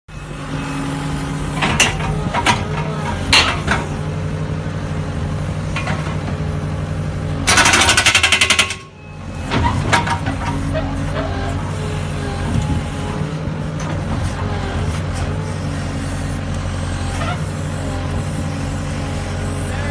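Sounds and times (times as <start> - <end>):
track loader engine running: 0.1 - 19.9
hydraulic breaker striking rock: 7.4 - 8.9.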